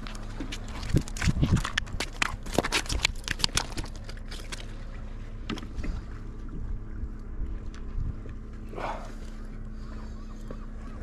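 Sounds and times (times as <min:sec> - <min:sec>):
steady low drone: 0:00.0 - 0:11.0
fish slapping on concrete: 0:00.8 - 0:04.7.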